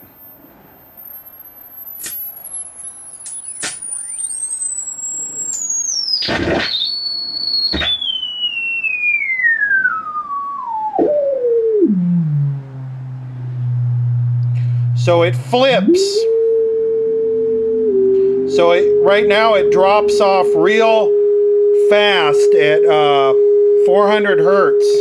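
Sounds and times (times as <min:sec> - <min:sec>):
sine tone sweeping down: 0:00.0 - 0:25.0
sharp clicks: 0:02.0 - 0:04.7.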